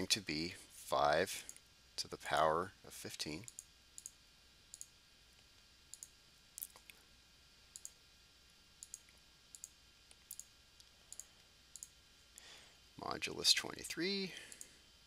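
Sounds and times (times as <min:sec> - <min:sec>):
computer mouse button clicking: 0:08.8 - 0:09.7.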